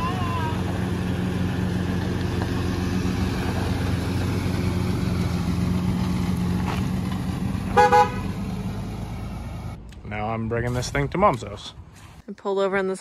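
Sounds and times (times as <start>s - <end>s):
van engine running: 0.0s - 10.5s
car horn beep: 7.7s - 8.4s.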